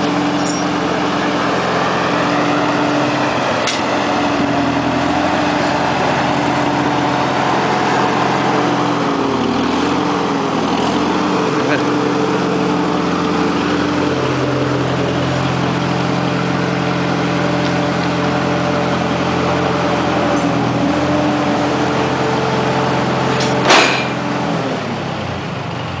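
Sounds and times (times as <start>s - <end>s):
tractor engine running: 0.0s - 26.0s
sharp metal clank: 0.4s - 0.7s, 23.4s - 24.2s.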